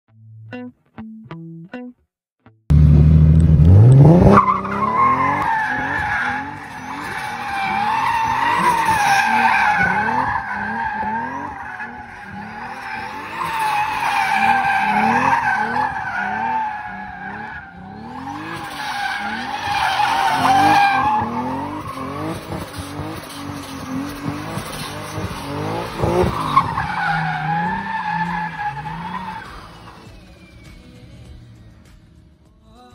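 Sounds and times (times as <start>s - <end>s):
car engine revving hard: 2.7s - 30.7s
tyres squealing: 4.4s - 30.7s.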